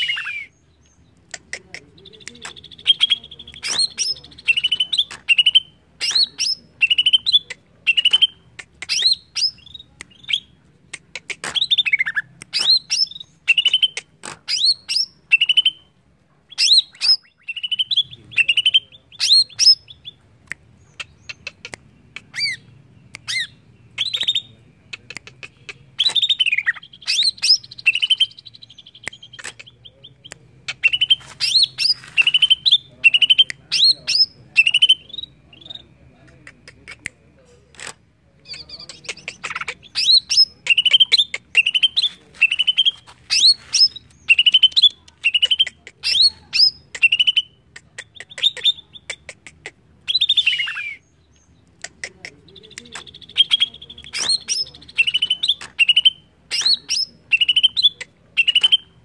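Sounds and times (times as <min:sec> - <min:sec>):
bird singing whistled notes: 0:52.6 - 0:59.0.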